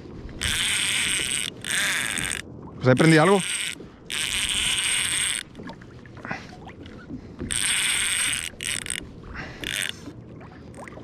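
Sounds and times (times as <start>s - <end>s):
fishing reel buzzing: 0.4s - 5.6s, 7.4s - 10.1s.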